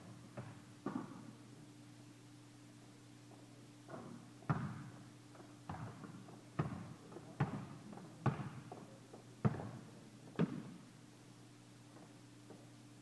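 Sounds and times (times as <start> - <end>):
basketball bouncing in echoing hall: 0.0 - 1.4, 3.9 - 10.9.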